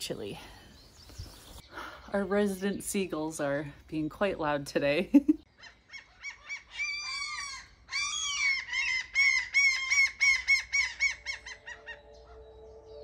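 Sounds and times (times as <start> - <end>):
gull calling: 5.6 - 12.4.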